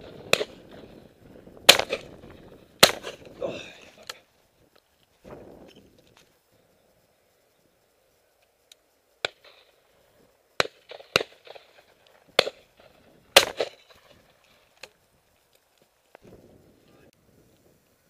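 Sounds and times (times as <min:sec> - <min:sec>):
shotgun shots with echo: 0:00.0 - 0:00.9, 0:01.7 - 0:02.2, 0:02.8 - 0:03.2, 0:10.6 - 0:11.8, 0:12.4 - 0:14.0.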